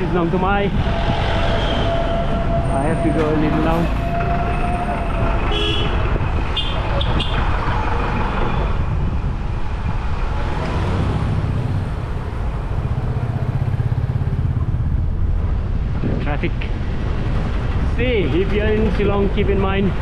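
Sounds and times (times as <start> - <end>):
vehicle engines running: 0.0 - 20.0
car horn toots: 1.8 - 7.4.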